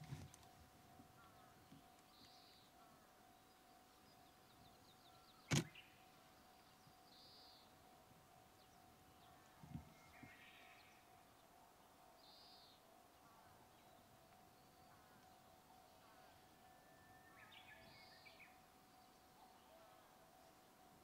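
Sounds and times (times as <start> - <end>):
faint steady hum: 0.0 - 21.0
sharp click: 5.5 - 5.7.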